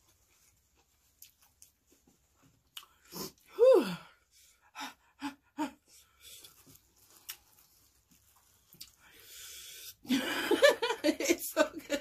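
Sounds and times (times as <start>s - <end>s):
woman's vocal outburst: 3.5s - 4.0s
chewing crunchy food: 6.4s - 9.0s.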